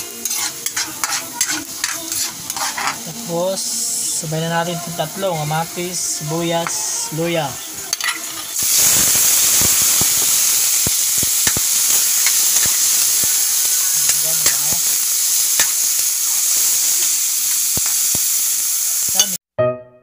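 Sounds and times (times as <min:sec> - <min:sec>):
vegetables sizzling in wok: 0:00.0 - 0:19.4
metal spatula scraping pan: 0:00.2 - 0:03.1, 0:07.9 - 0:08.6.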